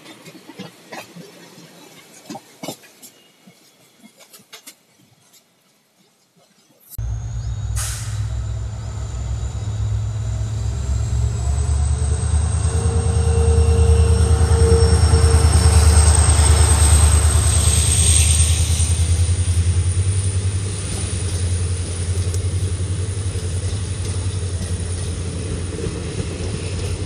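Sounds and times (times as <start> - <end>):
diesel locomotive engine rumble: 7.0 - 27.0
train wheel and rail noise: 7.0 - 27.0.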